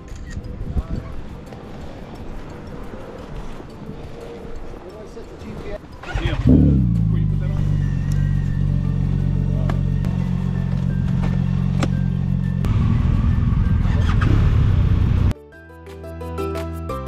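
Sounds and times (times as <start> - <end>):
music: 0.0 - 17.0
motorcycle engine running: 6.0 - 15.3.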